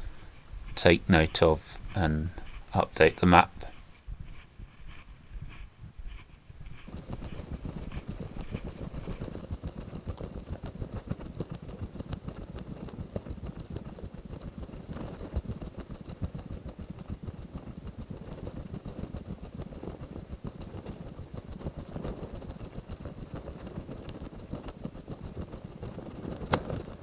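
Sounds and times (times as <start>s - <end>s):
footsteps: 0.0s - 10.5s.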